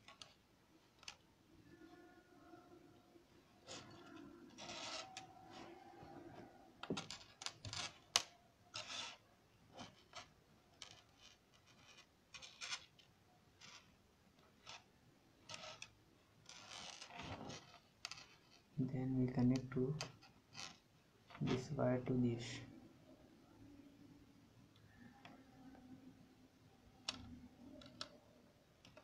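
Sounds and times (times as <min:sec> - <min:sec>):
clicks and scrapes of wires: 0:00.0 - 0:01.2, 0:03.6 - 0:21.8, 0:27.0 - 0:29.0.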